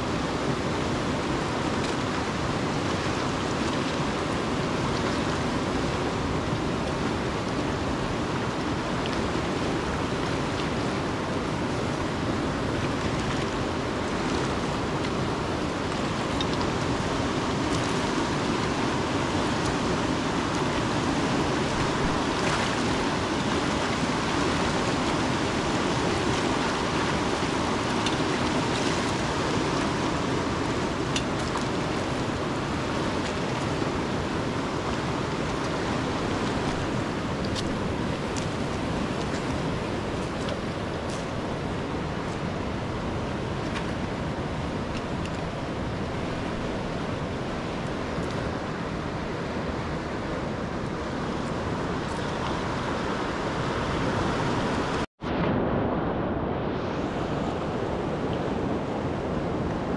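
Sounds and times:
flowing water rushing: 0.0 - 55.1, 56.0 - 59.9.

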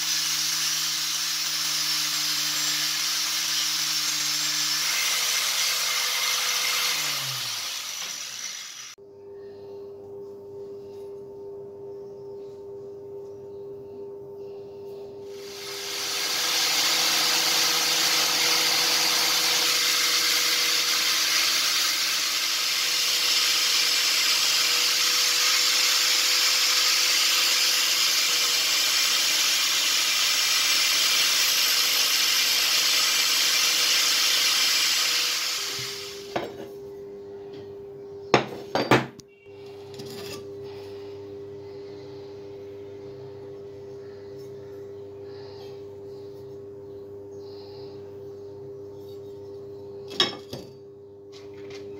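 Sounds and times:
belt grinder grinding steel: 0.0 - 9.0, 15.3 - 36.4
low machine hum: 6.1 - 26.4, 35.2 - 51.9.

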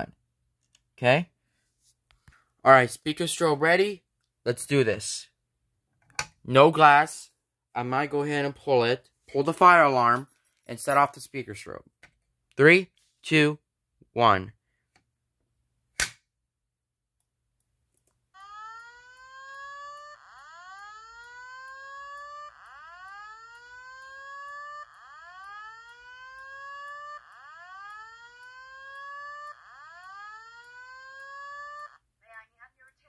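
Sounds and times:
whoop evacuation alarm tone: 18.4 - 32.0.

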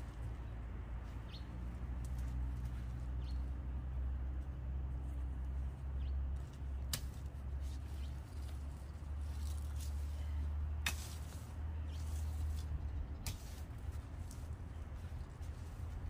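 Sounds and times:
steady low rumble: 0.0 - 16.0
hoe chopping into soil: 10.8 - 13.7.

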